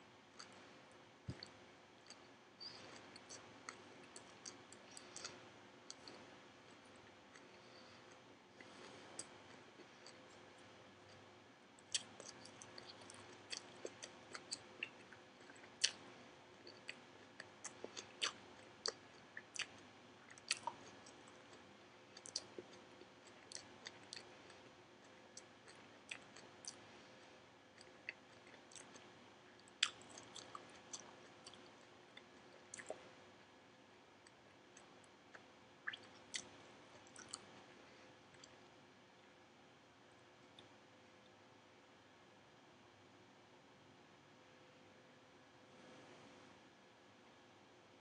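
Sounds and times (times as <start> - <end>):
person chewing crisply: 11.8 - 24.7, 27.8 - 33.0, 34.2 - 37.6.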